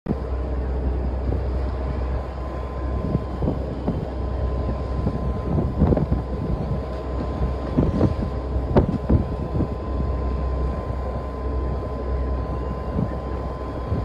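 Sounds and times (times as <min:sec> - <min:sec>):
wind: 0:00.0 - 0:14.0
boat rumble: 0:00.1 - 0:14.0
thin steady whine: 0:00.1 - 0:14.0
waves slapping against hull: 0:01.2 - 0:11.2.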